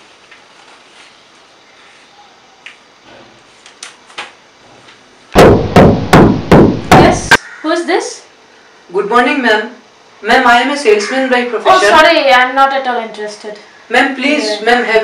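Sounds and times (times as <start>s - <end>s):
knocking on a door: 5.4s - 7.2s.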